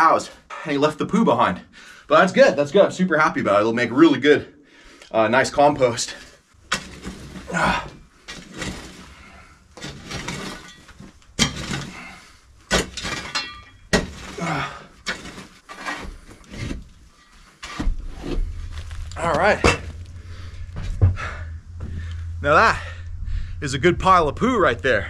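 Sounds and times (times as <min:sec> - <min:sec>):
shovel scraping stony dirt: 0:09.8 - 0:12.1, 0:12.7 - 0:20.5.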